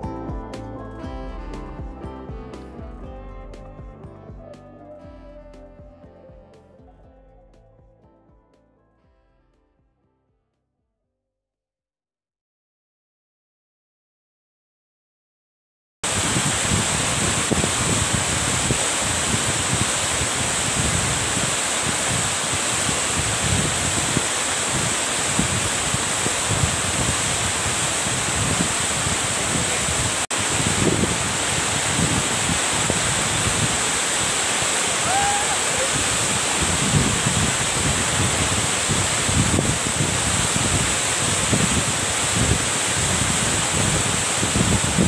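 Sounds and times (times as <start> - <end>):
waterfall rushing and splashing: 16.0 - 45.0.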